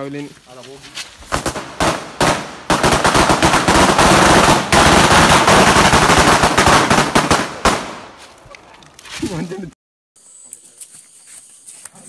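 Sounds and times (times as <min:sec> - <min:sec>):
firecrackers banging: 0:01.2 - 0:08.2.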